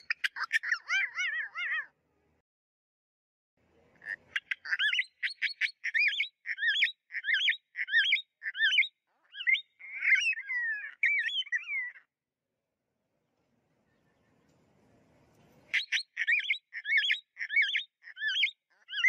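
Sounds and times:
parakeet chirping: 0.0 - 1.8, 4.1 - 12.0, 15.7 - 19.0.

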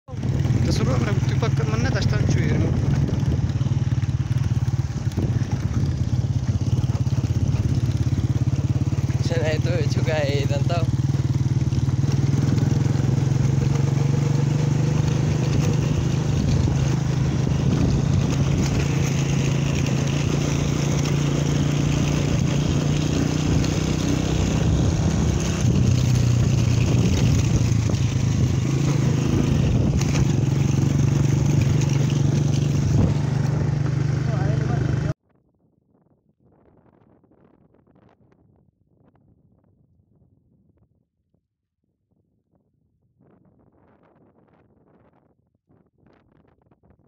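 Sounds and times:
wind noise: 0.1 - 34.2, 35.2 - 41.0, 43.2 - 47.0
motorcycle engine running: 0.1 - 35.2
road noise: 0.1 - 35.2.

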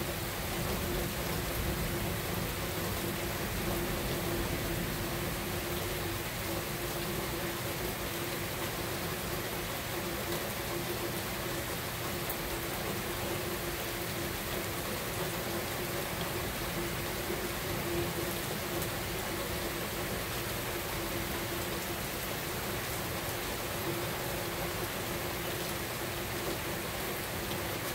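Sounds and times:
heavy rain falling: 0.0 - 27.9.

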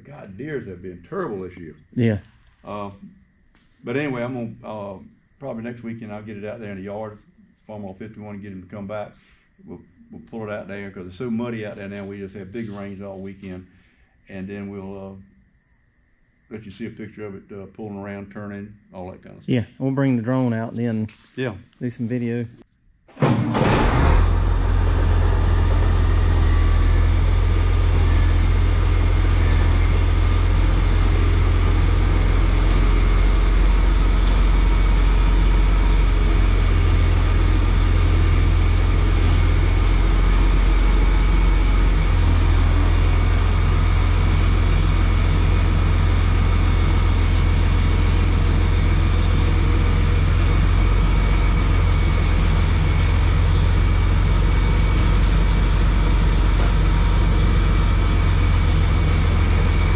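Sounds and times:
tractor engine droning: 23.1 - 59.9.

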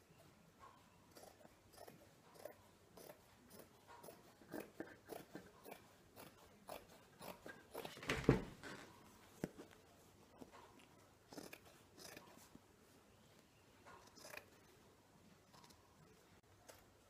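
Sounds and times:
thump: 8.0 - 8.6.

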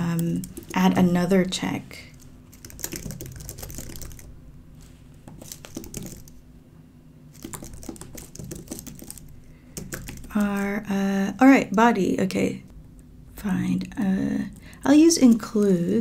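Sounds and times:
typing on computer keyboard: 0.0 - 1.0, 2.1 - 4.3, 5.3 - 6.4, 7.4 - 10.8.

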